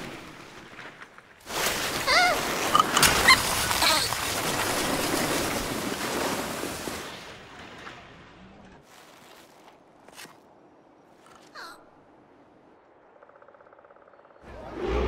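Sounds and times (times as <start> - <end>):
shell sliding over snow: 0.0 - 7.4.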